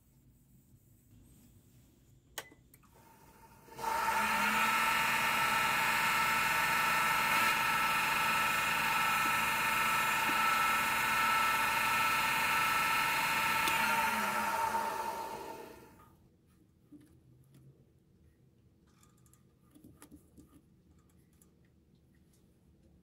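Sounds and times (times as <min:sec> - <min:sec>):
wood lathe motor whine: 0:03.3 - 0:16.0.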